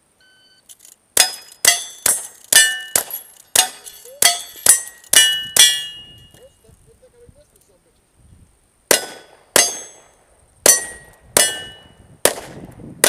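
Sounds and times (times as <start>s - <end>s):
steel target ringing: 1.2s - 6.3s, 8.9s - 12.1s
rifle shots: 8.9s - 12.7s.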